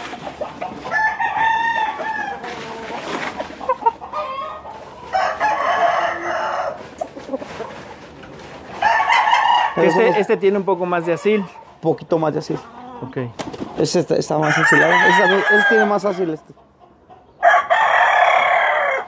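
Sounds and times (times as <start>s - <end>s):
roosters crowing: 0.0s - 7.7s, 8.6s - 11.6s, 14.1s - 16.5s, 17.2s - 19.0s.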